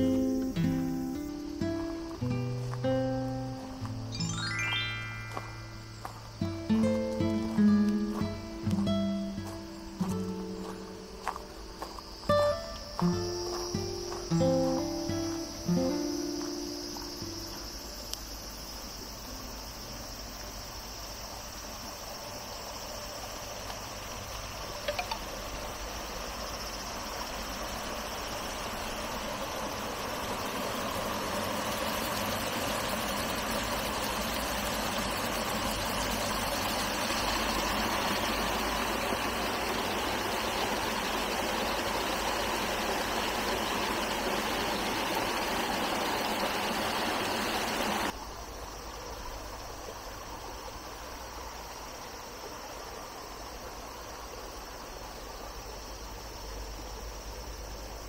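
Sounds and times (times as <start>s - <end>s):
flowing water rushing: 25.3s - 48.1s.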